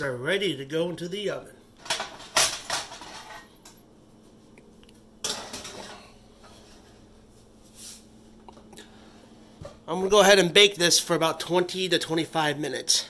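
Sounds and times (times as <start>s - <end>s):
metal baking sheet clanking on rack: 1.8s - 3.4s, 5.2s - 6.1s.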